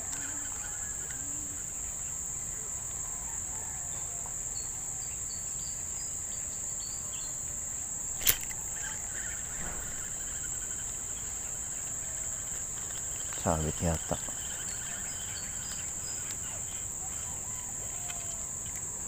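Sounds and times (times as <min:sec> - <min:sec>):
insects chorus: 0:00.0 - 0:19.0
sharp click: 0:08.2 - 0:08.6.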